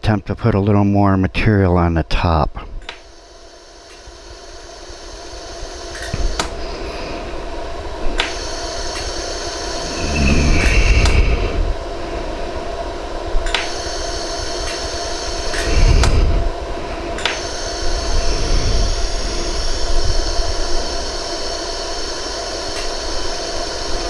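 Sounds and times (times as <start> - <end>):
steady hum and hiss: 0.0 - 24.0
laser welder clicks: 5.9 - 6.6, 8.2 - 9.2, 13.4 - 14.0, 14.6 - 16.2, 17.2 - 17.6, 22.7 - 23.0.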